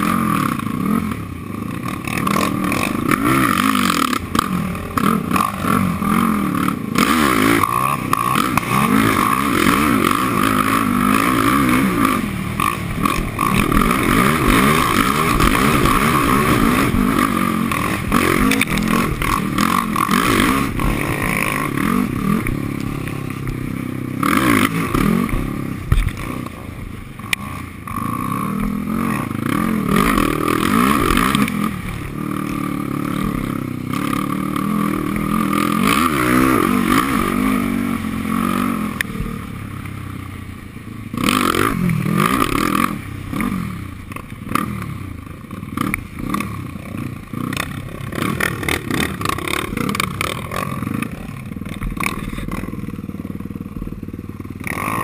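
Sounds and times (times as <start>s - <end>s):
quad engine revving: 0.0s - 40.1s, 41.0s - 55.0s.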